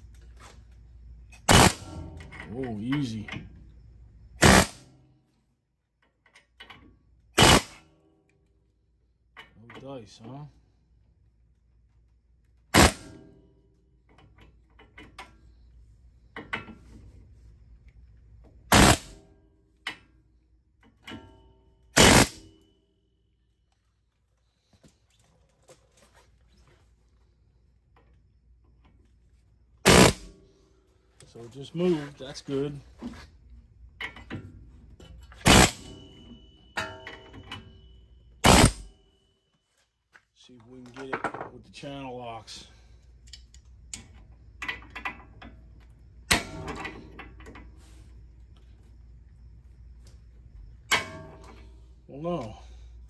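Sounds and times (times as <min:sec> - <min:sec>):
pneumatic air hammer bursts: 0:01.4 - 0:01.9, 0:04.4 - 0:04.9, 0:07.3 - 0:07.8, 0:12.7 - 0:13.2, 0:18.7 - 0:19.2, 0:21.9 - 0:22.5, 0:29.8 - 0:30.4, 0:35.4 - 0:36.0, 0:38.4 - 0:38.9
metal ringing: 0:01.7 - 0:03.4, 0:34.2 - 0:38.9, 0:50.8 - 0:51.8
air hammer bursts on metal: 0:18.7 - 0:19.1, 0:22.0 - 0:22.4, 0:29.8 - 0:30.3, 0:35.4 - 0:35.9, 0:38.4 - 0:38.9.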